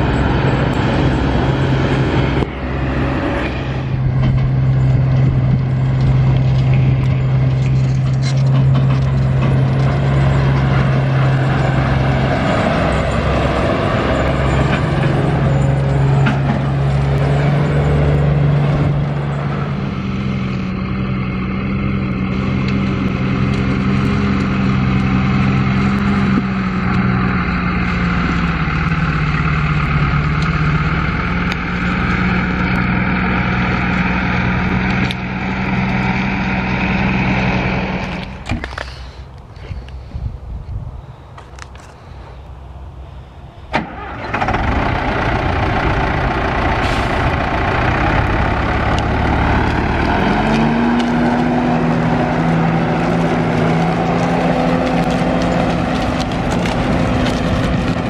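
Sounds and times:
combine harvester engine: 0.0s - 58.0s
tractor pulling trailer: 0.0s - 58.0s.

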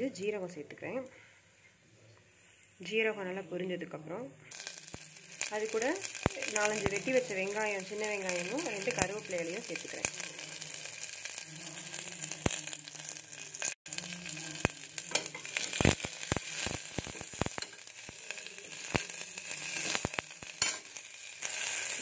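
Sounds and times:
vegetables sizzling in oil: 4.5s - 22.0s
spatula scraping a pot: 11.6s - 22.0s.

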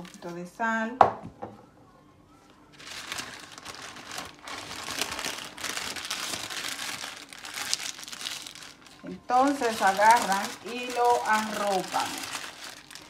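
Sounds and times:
parchment paper crinkling: 2.8s - 13.0s.

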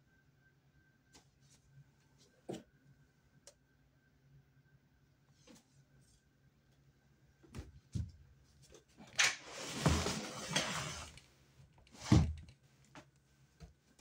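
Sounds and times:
rustling and scraping: 8.0s - 13.1s.

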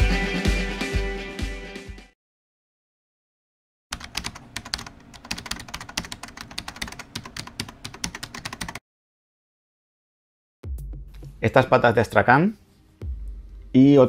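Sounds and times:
rapid keyboard typing: 3.9s - 8.8s.

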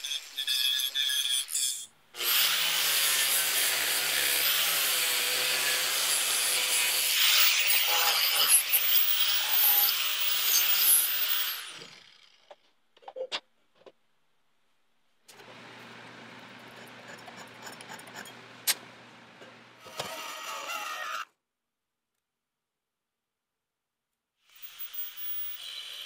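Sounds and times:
angle grinder grinding steel: 0.0s - 12.2s.

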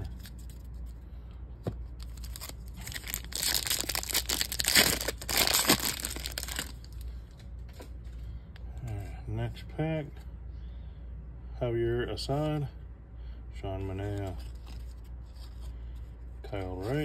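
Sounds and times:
wrapper tearing and crinkling: 2.0s - 7.0s.

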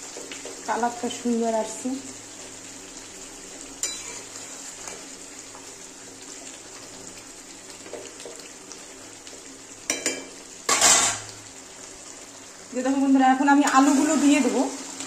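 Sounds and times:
gravy sizzling and bubbling: 0.0s - 15.0s
metal spatula scraping pan: 10.7s - 11.3s.

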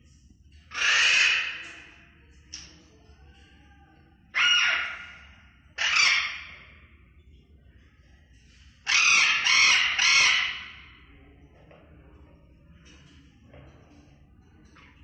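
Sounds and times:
parrots squawking harshly: 0.7s - 1.9s, 4.3s - 6.6s, 8.8s - 10.9s.

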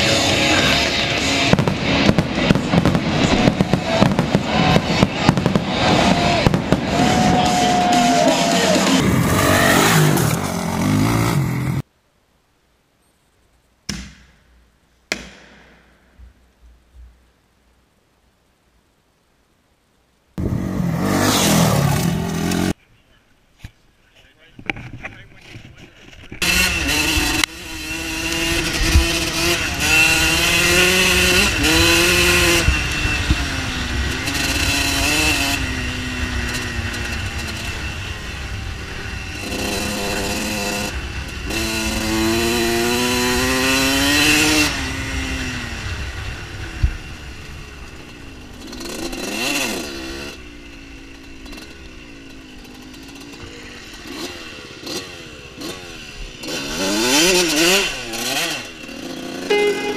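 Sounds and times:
dirt bike engine revving: 0.0s - 11.8s, 20.4s - 22.8s, 26.4s - 59.9s
sharp knock: 15.1s - 16.4s.

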